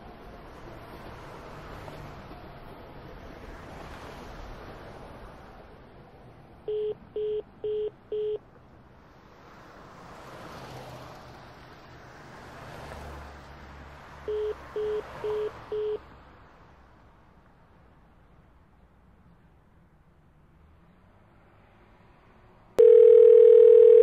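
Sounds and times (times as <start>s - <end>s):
short phone beeps: 6.7s - 8.4s, 14.3s - 16.0s, 22.8s - 24.0s.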